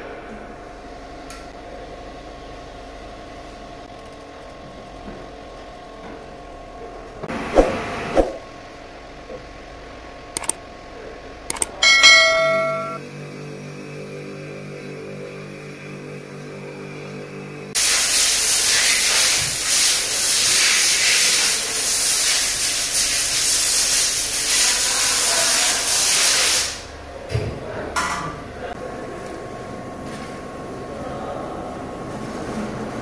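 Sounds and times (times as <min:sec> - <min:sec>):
rushing air hiss: 0:17.8 - 0:26.8.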